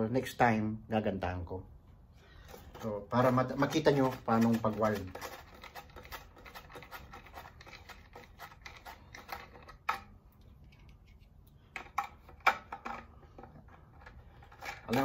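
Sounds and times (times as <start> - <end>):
small clicks and scratches: 3.6 - 15.0.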